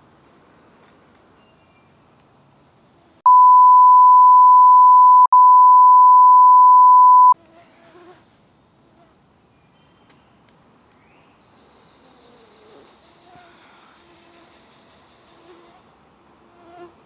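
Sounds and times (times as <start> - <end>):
censor bleep tone: 3.3 - 7.4.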